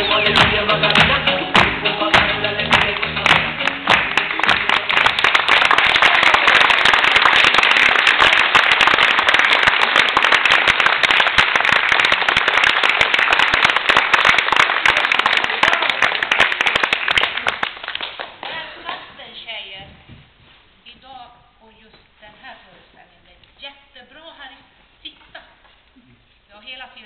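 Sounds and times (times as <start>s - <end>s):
audience applauding: 0.4s - 19.0s.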